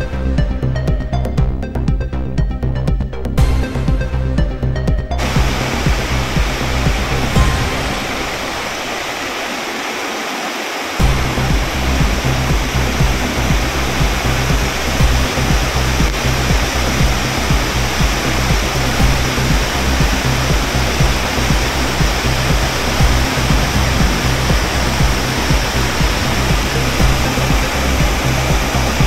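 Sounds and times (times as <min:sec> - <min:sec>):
floodwater rushing: 0:05.2 - 0:29.0.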